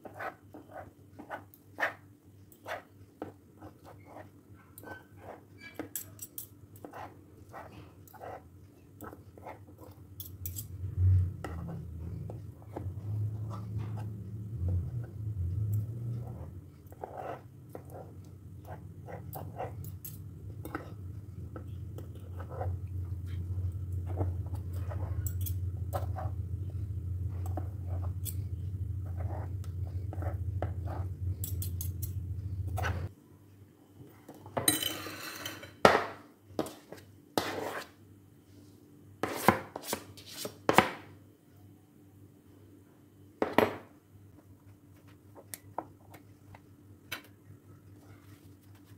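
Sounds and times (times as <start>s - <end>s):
steady low hum: 6.2s - 34.3s.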